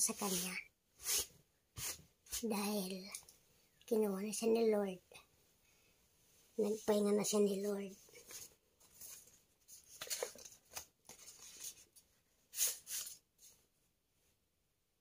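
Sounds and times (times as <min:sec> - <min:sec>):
paper rustling: 0:08.1 - 0:13.6.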